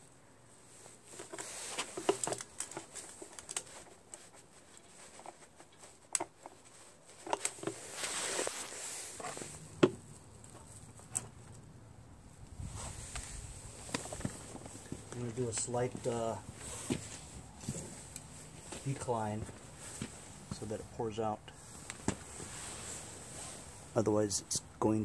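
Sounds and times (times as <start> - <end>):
plastic crinkling rustle: 0.7 - 11.5.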